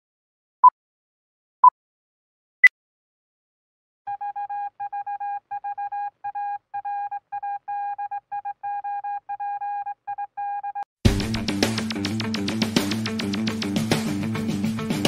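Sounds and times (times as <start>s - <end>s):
morse code beeps: 4.1s - 10.8s.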